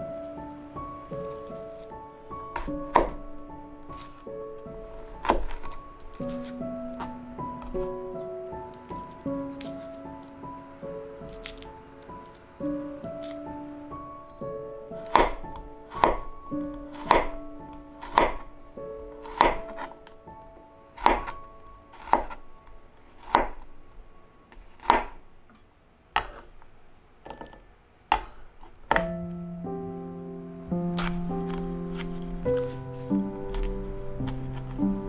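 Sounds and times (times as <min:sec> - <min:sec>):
knife chopping on cutting board: 0:02.6 - 0:03.2, 0:05.2 - 0:05.7, 0:15.0 - 0:17.4, 0:18.0 - 0:18.5, 0:19.2 - 0:20.0, 0:21.0 - 0:22.4, 0:23.1 - 0:23.6, 0:24.5 - 0:25.2, 0:26.2 - 0:26.5, 0:28.1 - 0:29.2, 0:31.0 - 0:32.7, 0:33.4 - 0:34.9.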